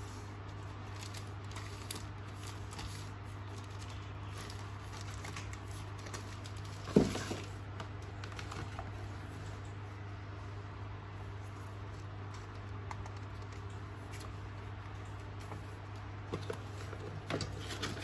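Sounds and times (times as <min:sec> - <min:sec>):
steady low hum: 0:00.0 - 0:18.0
plastic wrapping rustling: 0:00.5 - 0:09.0
thump on cardboard box: 0:06.9 - 0:07.4.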